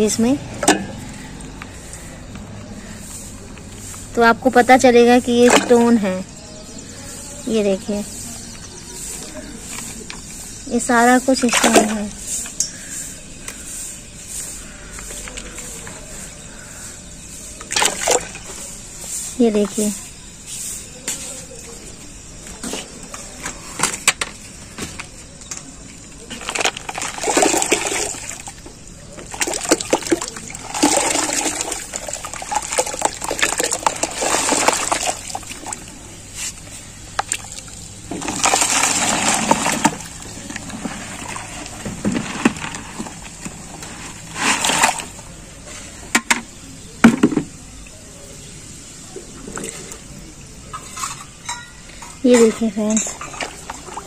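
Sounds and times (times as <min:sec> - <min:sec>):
water splashing into metal basin: 0:11.3 - 0:12.1, 0:17.6 - 0:18.6, 0:26.3 - 0:36.0, 0:37.1 - 0:41.8.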